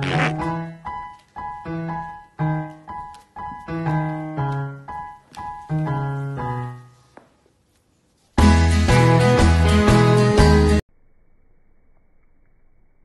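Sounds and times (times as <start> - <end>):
piano music: 0.0 - 7.0, 8.4 - 10.8.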